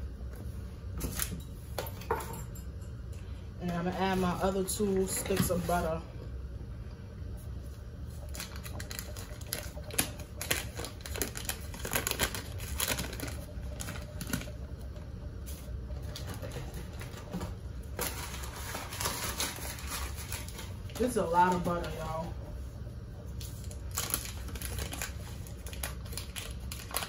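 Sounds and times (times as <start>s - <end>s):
paper wrapper crinkling: 8.2s - 14.6s, 17.9s - 22.0s, 23.4s - 27.0s.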